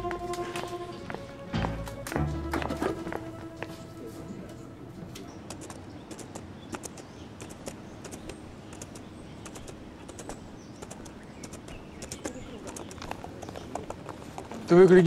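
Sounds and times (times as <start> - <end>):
outdoor background noise: 0.0 - 15.0
sharp clicks: 5.4 - 13.2.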